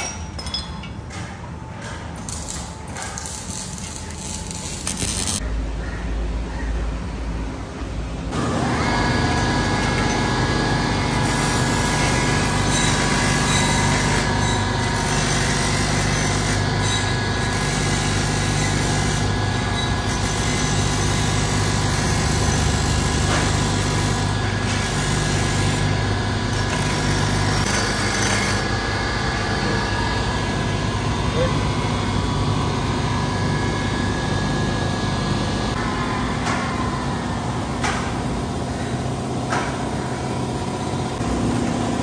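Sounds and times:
buffing machine motor hum: 8.4s - 17.9s.

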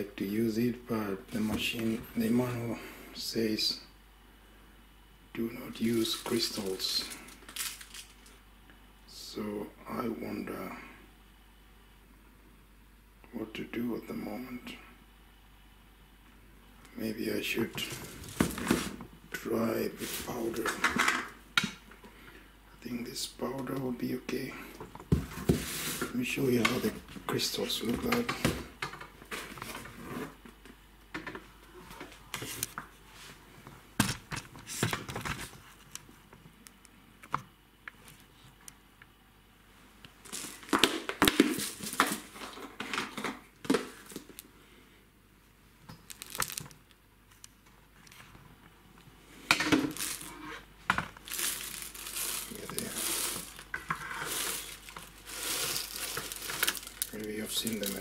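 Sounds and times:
packaging crinkling and rustling: 6.0s - 8.4s, 17.7s - 19.0s, 40.3s - 42.6s, 46.0s - 47.0s, 49.6s - 58.0s.

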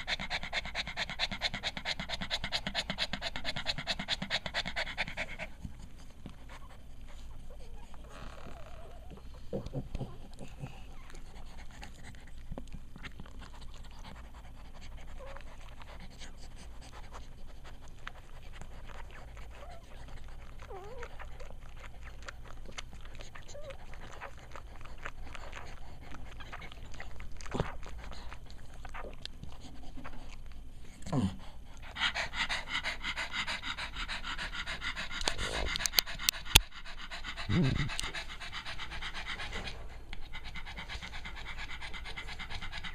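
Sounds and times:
dog panting rapidly: 0.0s - 42.9s.

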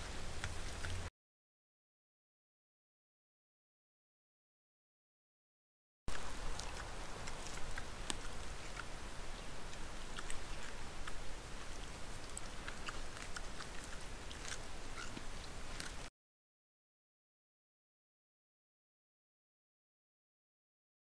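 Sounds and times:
boar crunching and chewing: 0.0s - 1.1s, 6.1s - 16.1s
microphone hiss: 0.0s - 1.1s, 6.1s - 16.1s.

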